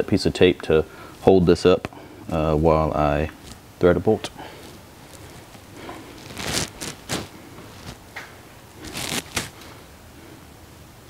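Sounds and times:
tape rustling and scraping: 4.4s - 9.8s.

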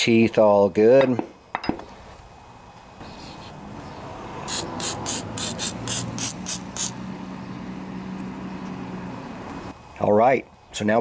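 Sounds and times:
aerosol spray hissing: 4.4s - 7.0s.

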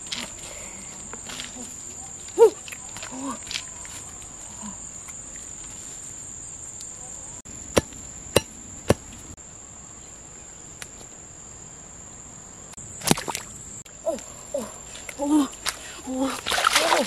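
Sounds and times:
insects droning: 0.0s - 17.0s
wooden stake pounded into soil: 7.7s - 9.2s.

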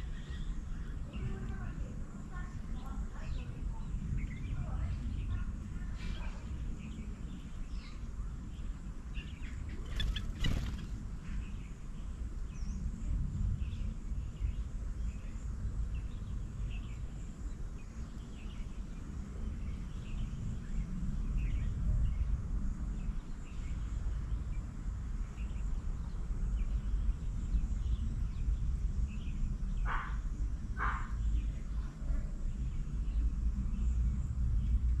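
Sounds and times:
steady low rumble: 0.0s - 35.0s
bird chirps: 2.8s - 12.9s.

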